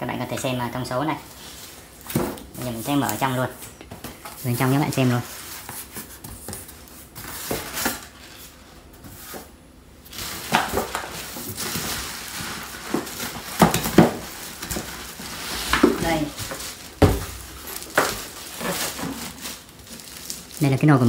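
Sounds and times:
packaging rustling and crinkling: 1.3 - 21.0
box knocks and bumps: 15.7 - 18.2.

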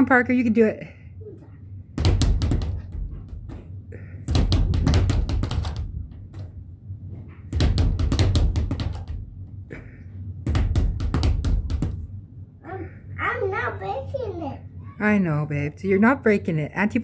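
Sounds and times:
speed bag rapid thuds: 2.0 - 3.6, 4.2 - 6.2, 7.5 - 9.3, 10.4 - 12.1.

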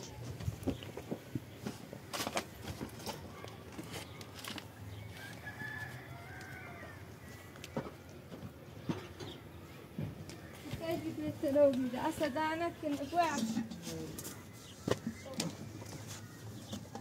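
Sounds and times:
rooster crowing: 5.2 - 7.1.

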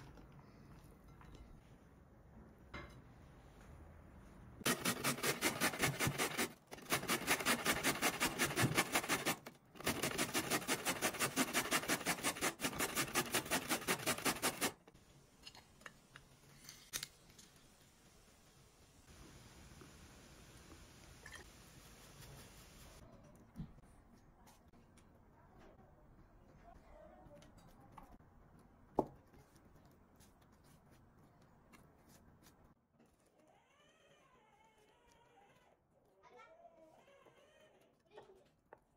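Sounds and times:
scraping strokes on food: 4.6 - 14.8.

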